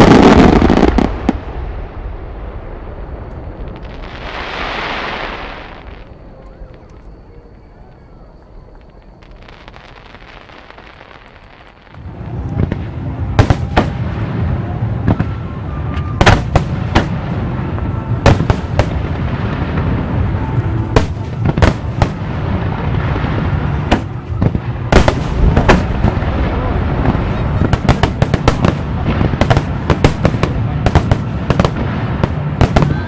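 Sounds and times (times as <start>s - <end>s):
sharp firework cracks: 0.0s - 7.1s, 8.7s - 14.0s, 20.9s - 33.0s.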